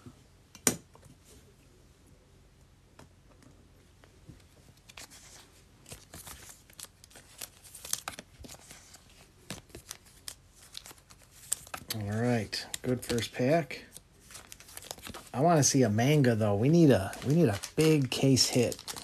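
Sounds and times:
card wrappers crinkling and clicking: 0:04.7 - 0:19.0.

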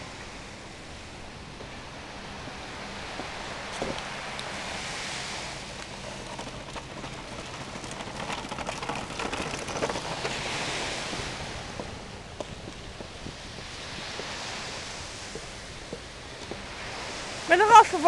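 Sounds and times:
wind and surf hiss: 0:00.0 - 0:18.0
toy wheels rattling over wooden planks: 0:05.6 - 0:13.8.

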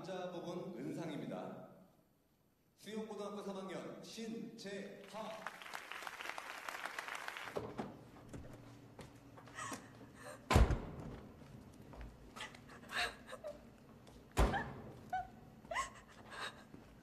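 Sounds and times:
woman crying breaths: 0:09.5 - 0:10.5, 0:12.4 - 0:13.7, 0:15.2 - 0:17.0.

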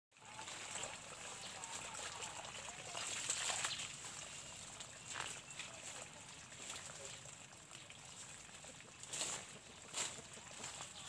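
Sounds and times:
water running from hose: 0:00.1 - 0:11.0
footsteps on dry leaves: 0:03.0 - 0:07.1, 0:09.0 - 0:11.0.

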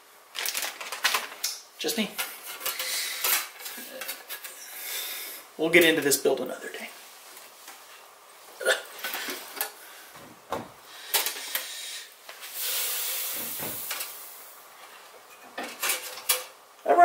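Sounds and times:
plastic parts clattering: 0:00.3 - 0:01.5, 0:15.4 - 0:16.6.

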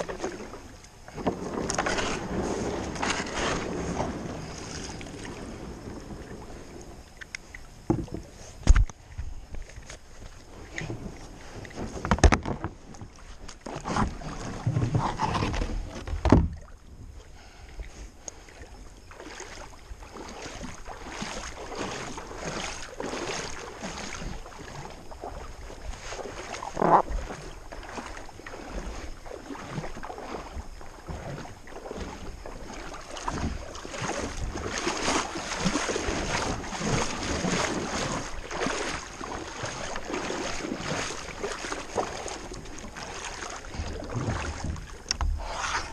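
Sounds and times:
sharp knocks on kayak: 0:07.9 - 0:08.9, 0:11.9 - 0:12.8, 0:14.7 - 0:16.6
water splashing and dripping: 0:17.8 - 0:45.9.

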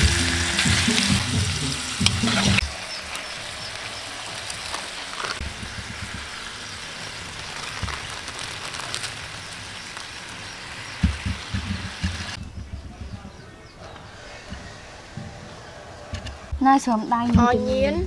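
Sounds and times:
burger patties sizzling in pan: 0:00.0 - 0:12.4.

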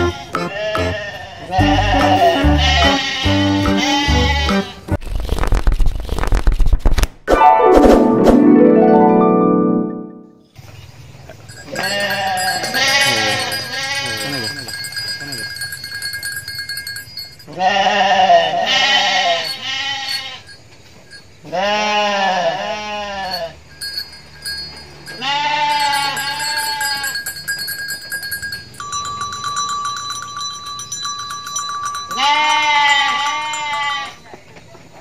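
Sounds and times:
lambs bleating: 0:00.0 - 0:04.9, 0:17.6 - 0:20.4, 0:21.5 - 0:23.5, 0:25.2 - 0:27.1.

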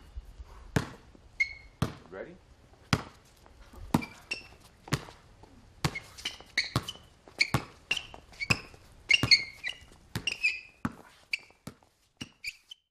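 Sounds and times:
basketball bouncing on hard court: 0:00.7 - 0:02.1, 0:02.9 - 0:03.2, 0:03.8 - 0:05.2, 0:05.8 - 0:12.5
sneaker squeaks: 0:01.4 - 0:02.0, 0:03.9 - 0:05.2, 0:05.8 - 0:12.9.

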